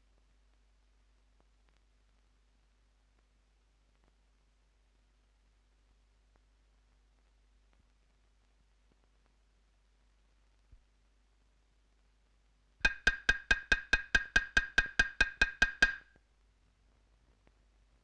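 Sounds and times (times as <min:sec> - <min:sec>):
pitched percussion knocks: 0:12.8 - 0:16.1.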